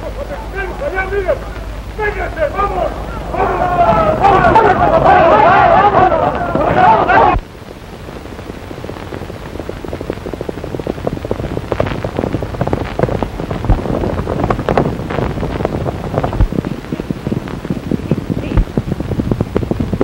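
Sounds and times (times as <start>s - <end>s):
horses galloping: 0.0s - 7.4s
old film soundtrack hiss: 0.0s - 20.0s.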